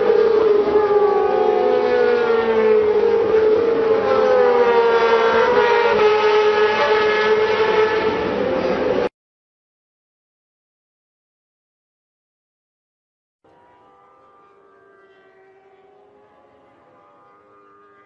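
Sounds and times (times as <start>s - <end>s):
racing motorcycle engines whining: 0.0s - 9.1s, 13.5s - 18.0s.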